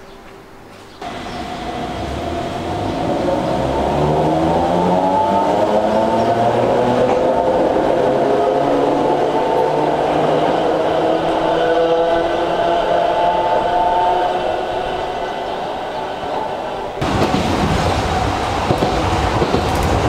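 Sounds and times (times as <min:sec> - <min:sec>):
electric train motor whine: 0:01.0 - 0:08.2.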